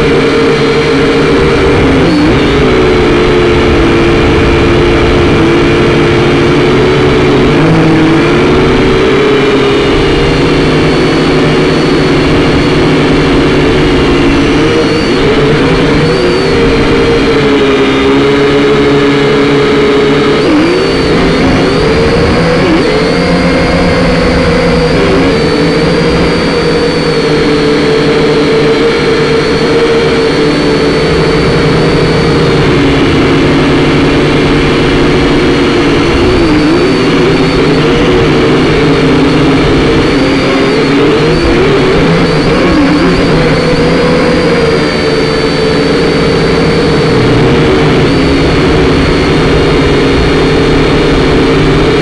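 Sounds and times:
drone propellers whining: 0.0s - 52.0s.

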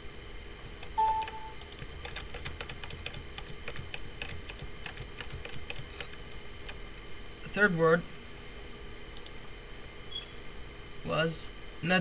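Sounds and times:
computer keyboard keys clicking: 0.6s - 6.8s.

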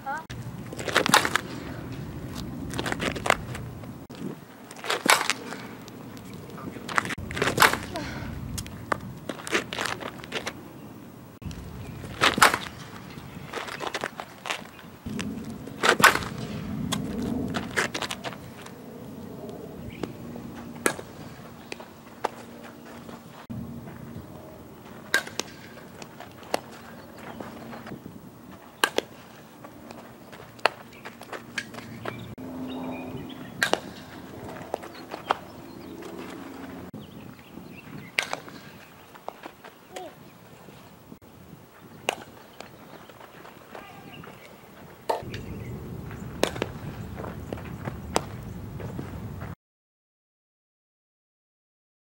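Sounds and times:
footsteps on dirt: 0.1s - 10.6s, 11.4s - 41.0s, 41.6s - 49.6s
bat hitting softball: 0.7s - 2.2s, 4.8s - 5.9s, 7.3s - 8.1s, 12.1s - 13.0s, 15.8s - 17.9s, 20.8s - 21.2s, 25.1s - 26.8s, 28.8s - 29.3s, 33.5s - 34.2s, 38.2s - 38.9s, 46.4s - 46.8s.

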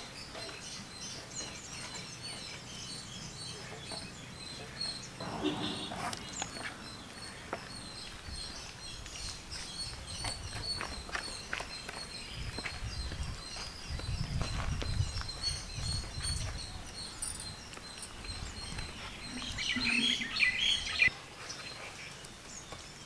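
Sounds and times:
birds chirping: 0.0s - 23.0s
distant voice: 5.2s - 7.0s.

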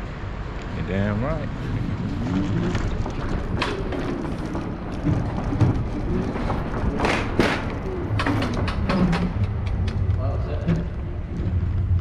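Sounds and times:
road and traffic rumble: 0.0s - 12.0s
thuds: 3.3s - 9.3s.

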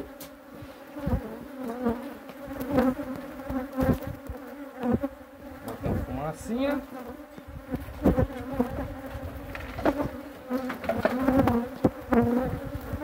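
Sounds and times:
bees buzzing: 0.0s - 13.0s
single bee passing close: 0.0s - 13.0s
knocks on wooden hive boxes: 9.5s - 12.4s.

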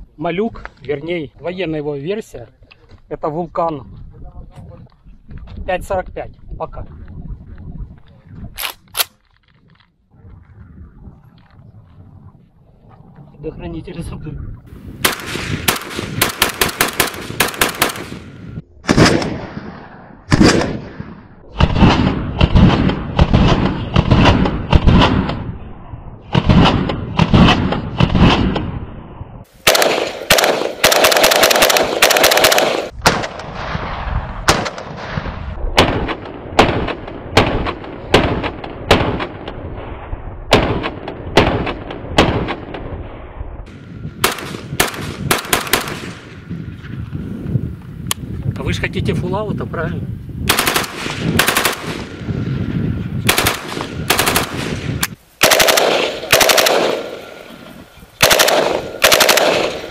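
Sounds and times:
rifle gunshots: 15.0s - 25.5s, 26.3s - 28.8s, 29.6s - 39.6s, 40.5s - 42.9s, 44.2s - 46.4s, 50.5s - 52.3s, 53.2s - 57.6s, 58.2s - 59.9s.

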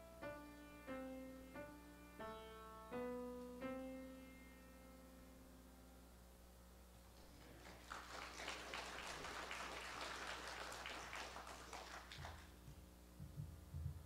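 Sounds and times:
audience clapping faintly: 7.1s - 12.9s.

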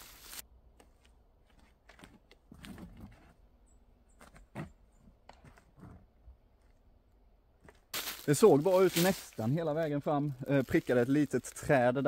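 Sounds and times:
faint footsteps and scuffs: 7.6s - 11.3s
short rustle: 7.9s - 11.7s.

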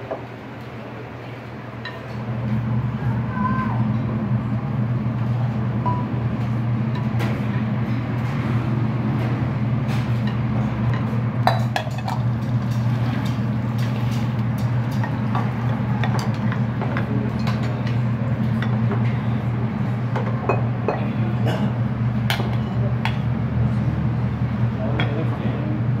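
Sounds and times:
steady low hum: 0.0s - 26.0s
dishes and utensils clinking: 10.9s - 18.8s.

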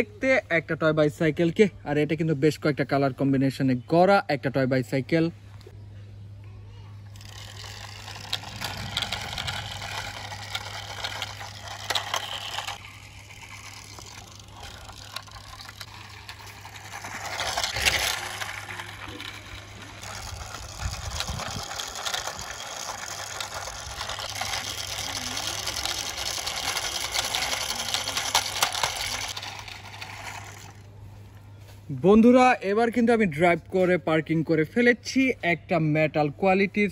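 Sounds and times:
toy wheels scraping on concrete: 7.0s - 31.0s.

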